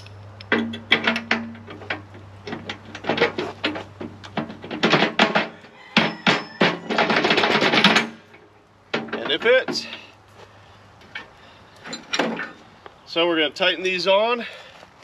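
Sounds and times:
metal bolts clinking and knocking: 0.5s - 10.1s, 11.0s - 12.6s.

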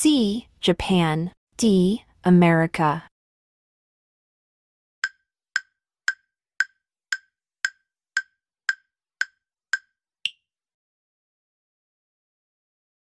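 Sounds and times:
wood-block-like timer ticks: 5.0s - 10.4s.

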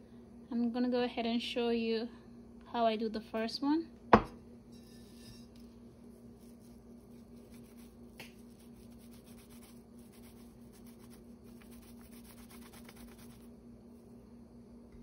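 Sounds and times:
steady low hum: 0.0s - 15.0s
hands rubbing dough: 5.9s - 13.5s.

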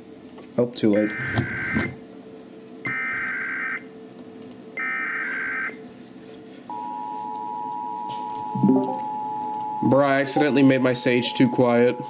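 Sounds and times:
warbling digital data tones: 8.5s - 9.2s.

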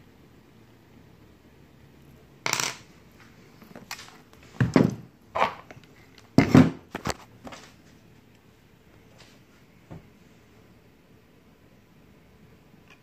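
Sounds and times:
small hard parts knocking on table: 2.4s - 2.9s.

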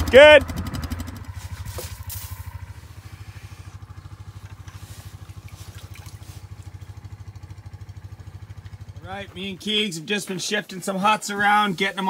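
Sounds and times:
small engine idling: 0.0s - 12.0s
snow shovel scraping snow: 1.2s - 3.7s.

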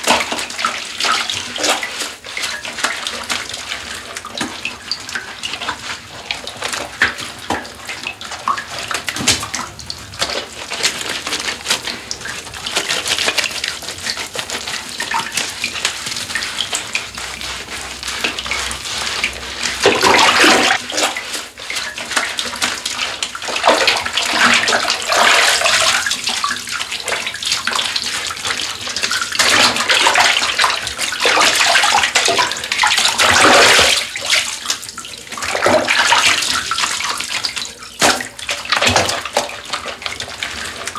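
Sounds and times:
bath water sloshing and splashing: 0.0s - 40.9s.

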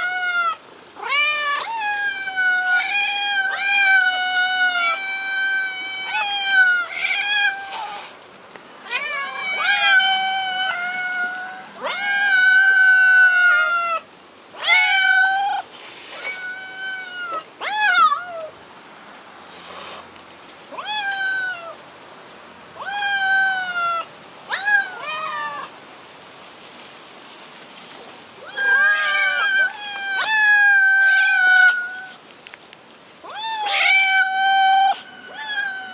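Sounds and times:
cats meowing: 0.0s - 8.2s, 8.8s - 18.6s, 20.7s - 21.8s, 22.8s - 25.7s, 28.4s - 32.2s, 33.2s - 35.9s.

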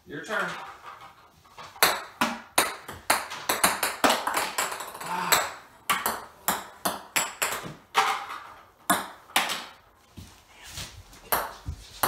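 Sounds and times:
balls bouncing with sharp pings: 1.7s - 9.8s.

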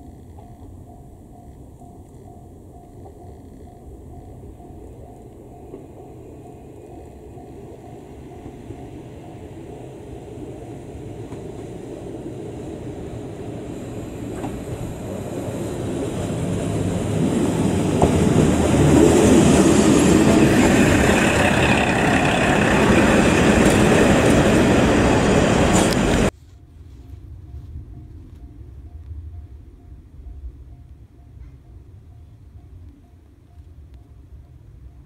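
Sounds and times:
diesel train engine: 0.5s - 26.4s
train wheels on rails: 4.1s - 26.5s.

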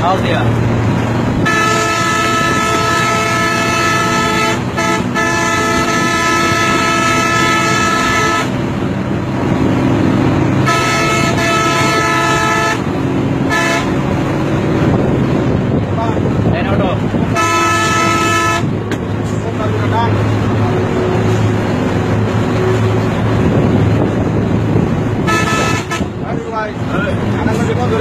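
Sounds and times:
bus engine and road noise: 0.0s - 28.0s
bus horn blasts: 1.4s - 8.8s, 10.6s - 14.3s, 17.2s - 18.9s, 25.2s - 26.4s.

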